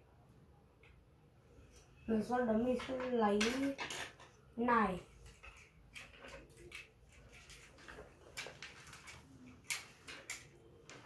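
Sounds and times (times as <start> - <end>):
plastic pieces clicking: 5.2 - 11.0.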